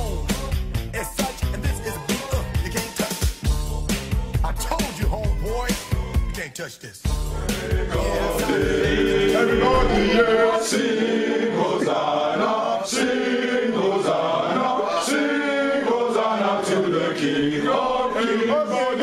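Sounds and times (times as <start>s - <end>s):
music track with heavy bass: 0.0s - 6.4s, 7.1s - 10.2s
young men singing unaccompanied: 7.4s - 19.0s.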